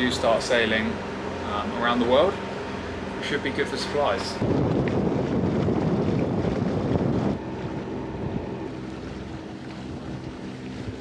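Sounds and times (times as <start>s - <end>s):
boat engine drone: 0.0s - 11.0s
water wash: 0.0s - 11.0s
wind buffeting microphone: 3.8s - 11.0s.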